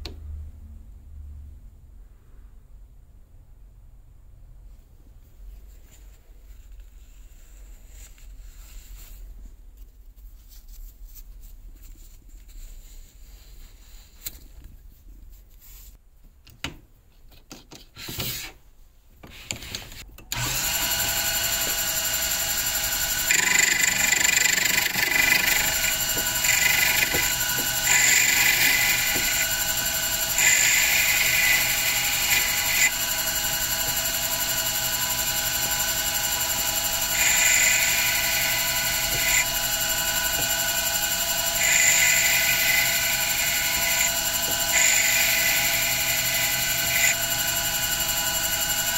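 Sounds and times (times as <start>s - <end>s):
metal lathe whining: 20.3s - 48.9s
tool bit cutting leather: 20.4s - 48.9s.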